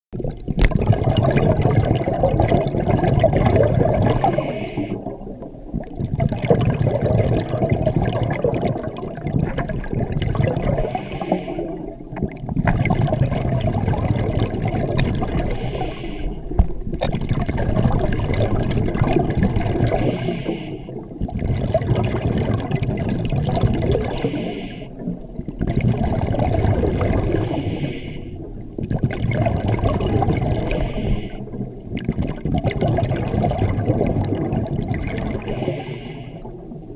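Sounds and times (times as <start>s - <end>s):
exhaled bubbles burbling: 0.1s - 36.9s
inhaling through diving regulator: 3.9s - 5.1s, 10.7s - 11.9s, 15.4s - 16.6s, 19.9s - 21.0s, 24.0s - 25.1s, 27.3s - 28.5s, 30.6s - 31.6s, 35.3s - 36.5s.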